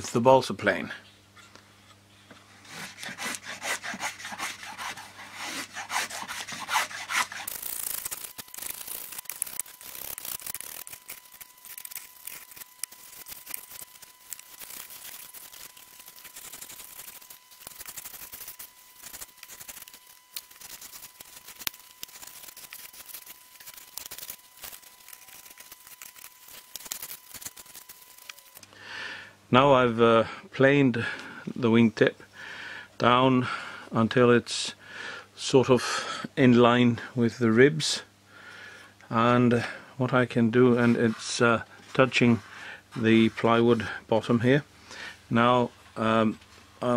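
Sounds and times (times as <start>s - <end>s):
blade rasping on wood: 2.6s - 28.6s.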